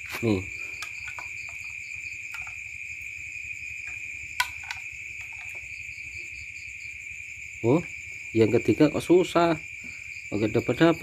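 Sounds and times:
insect chorus: 0.0 - 11.0.

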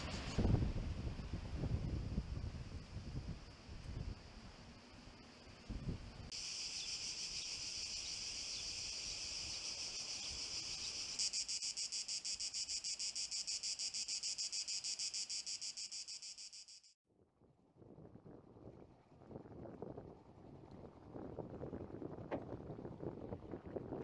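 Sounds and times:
cicadas buzzing: 6.3 - 17.0.

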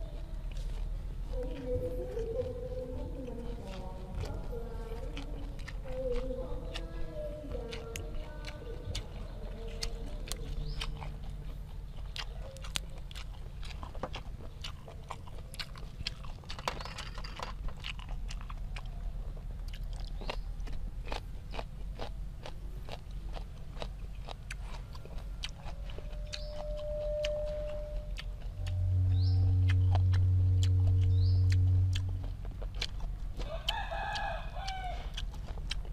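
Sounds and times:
chewing and crunching: 0.0 - 35.9
rooster crowing: 33.4 - 35.2.

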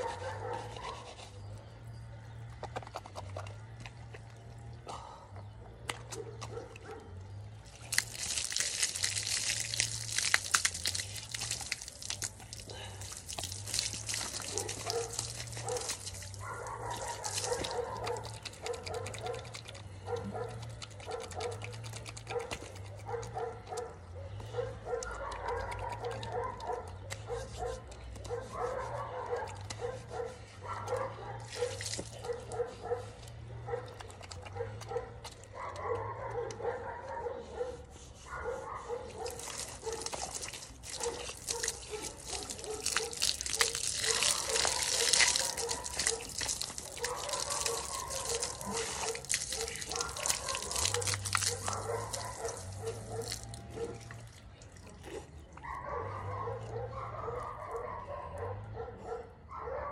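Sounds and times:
hose water spraying on concrete: 7.7 - 19.4, 31.4 - 33.0, 38.4 - 54.7.

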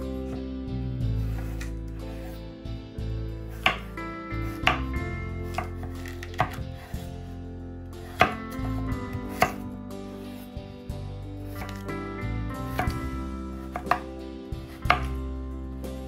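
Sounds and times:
knife chopping on cutting board: 3.5 - 7.1, 8.0 - 9.6, 11.5 - 11.9, 12.7 - 15.2.

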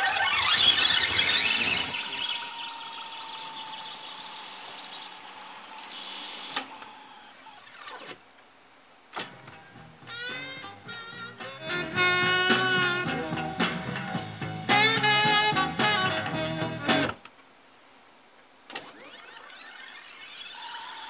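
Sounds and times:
tape squealing chatter: 0.0 - 8.1, 18.8 - 21.0
tape transport clicks: 6.1 - 8.2, 15.8 - 17.5, 18.7 - 20.2
music playback: 9.2 - 17.3.

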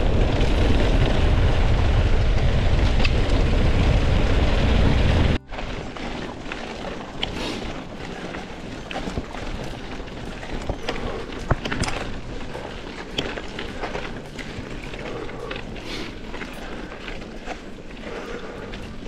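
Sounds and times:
bike clicks and rattles: 0.0 - 19.0
bike tyres on dirt road: 0.0 - 19.0.

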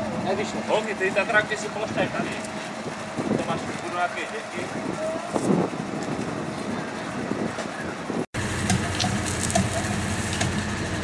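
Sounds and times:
engine idling drone: 0.0 - 11.0.

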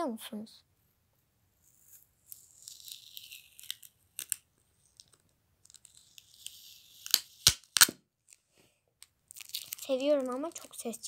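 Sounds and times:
tape peeling off plastic: 1.6 - 8.4, 9.3 - 10.7.

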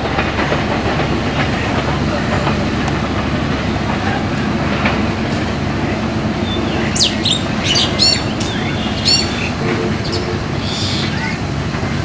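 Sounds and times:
train rumbling: 0.0 - 12.0
bird giving sharp high calls: 6.4 - 11.4.

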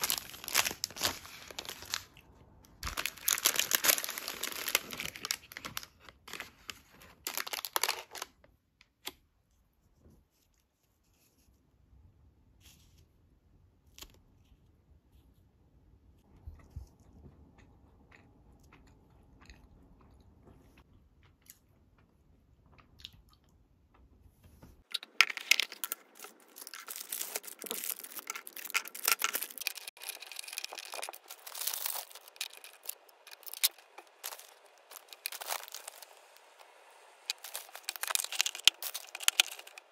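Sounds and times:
loud crunching and crackling: 0.0 - 6.3, 24.9 - 39.9.

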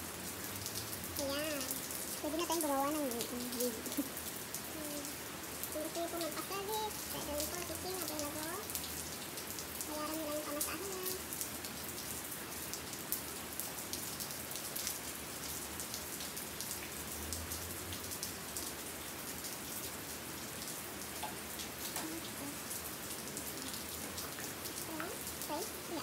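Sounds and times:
rain patter: 0.0 - 26.0.

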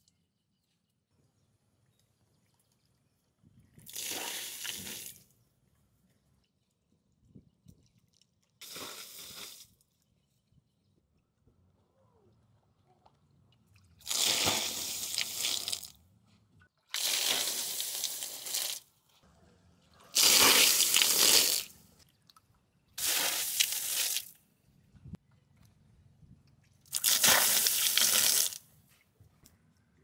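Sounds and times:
water splashing onto tiles: 3.8 - 5.2, 14.1 - 15.9, 16.9 - 18.8, 20.2 - 21.7, 26.9 - 28.6.

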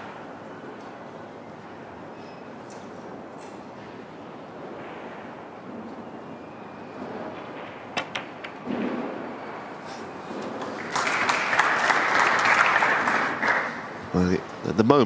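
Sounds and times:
snooker balls clicking: 8.0 - 8.6
audience applause: 10.5 - 14.3.

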